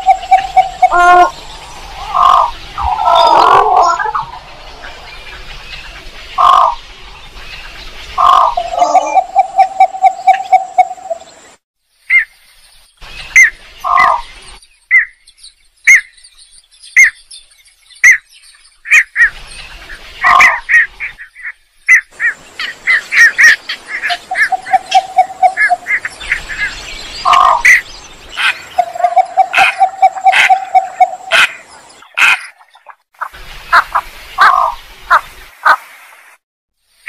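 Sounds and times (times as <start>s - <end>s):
bird call notes: 0.0s - 4.3s, 8.2s - 11.4s, 22.9s - 27.8s, 28.4s - 32.6s.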